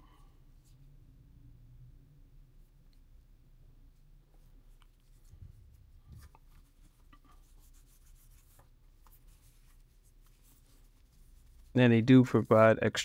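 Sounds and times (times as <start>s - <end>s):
cloth rubbing on camera: 4.2s - 13.0s.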